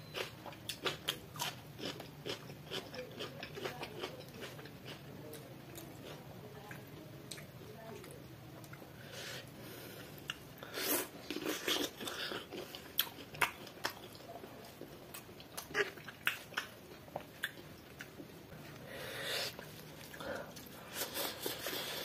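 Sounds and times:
chewing with wet smacks: 0.0 - 8.8, 11.3 - 18.8.

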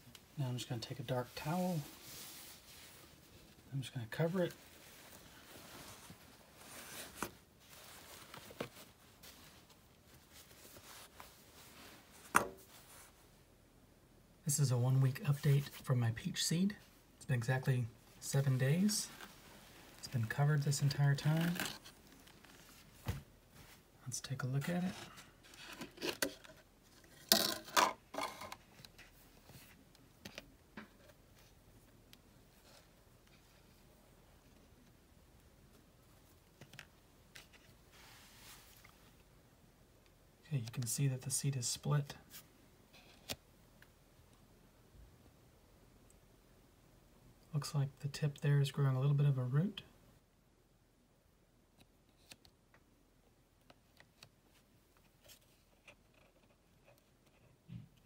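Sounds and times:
cloth towel rustling: 0.2 - 3.6, 4.4 - 13.3, 18.0 - 23.9, 37.7 - 39.2.

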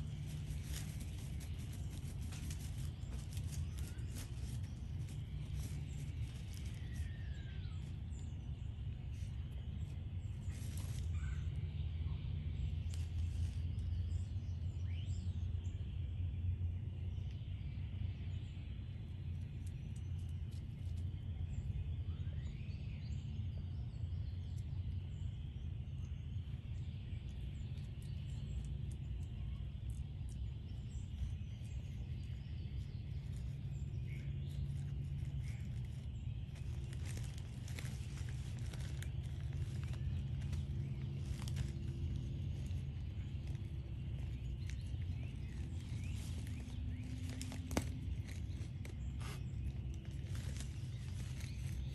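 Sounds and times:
rustling of pine needles and plastic: 0.0 - 11.8, 12.5 - 14.6, 26.6 - 51.9
steady low rumble: 0.0 - 51.9.

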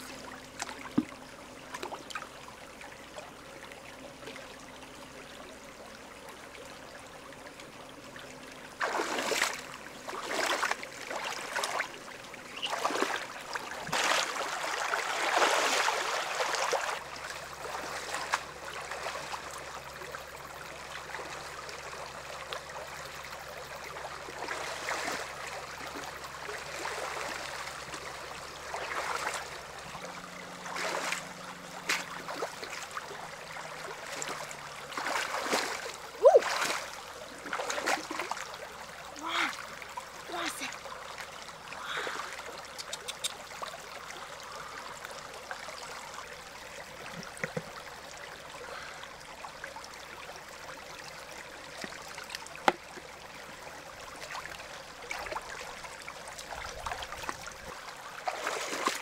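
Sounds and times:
river water trickling: 0.0 - 59.0
water sloshing: 8.8 - 19.6, 24.3 - 40.8, 46.9 - 47.9, 54.1 - 59.0.

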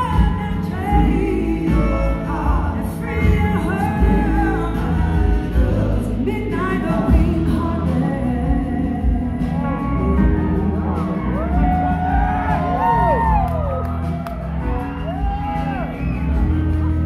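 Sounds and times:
woman singing: 0.0 - 12.0
bass: 0.0 - 17.0
drum kits: 0.0 - 17.0
electric guitar: 0.0 - 17.0.

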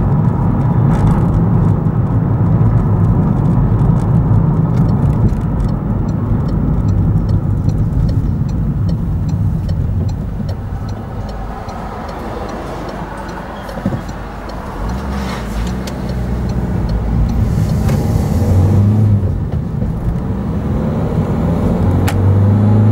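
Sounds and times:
car engine accelerating: 0.0 - 22.9
light regular ticking: 0.2 - 20.6.

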